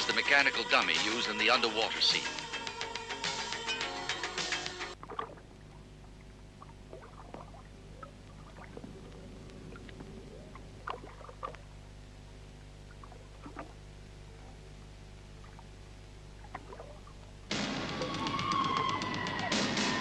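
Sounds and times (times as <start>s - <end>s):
water bubbling and clicking: 4.9s - 17.6s
steady low hum: 4.9s - 18.2s
water popping: 4.9s - 18.8s.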